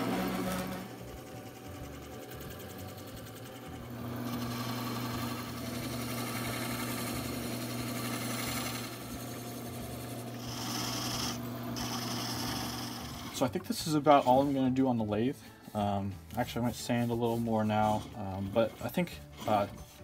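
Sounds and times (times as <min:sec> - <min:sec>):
wood lathe motor hum: 0:00.0 - 0:14.4
chisel scraping spinning wood: 0:00.0 - 0:15.0, 0:15.8 - 0:20.0.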